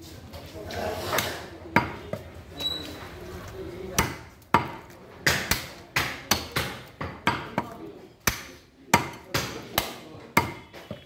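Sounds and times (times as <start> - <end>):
knife chopping meat on wood: 3.9 - 11.0.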